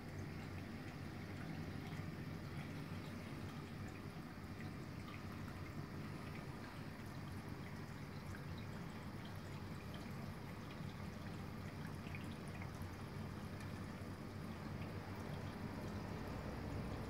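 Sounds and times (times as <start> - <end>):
aquarium water trickling: 0.0 - 17.0
low steady hum: 0.0 - 17.0
water drips: 0.0 - 17.0.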